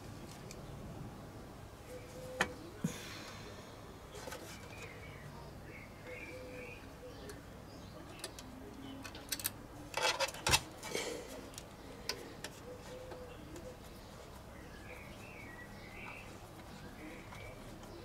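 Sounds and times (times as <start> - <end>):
plastic and metal parts clattering: 9.0 - 11.1.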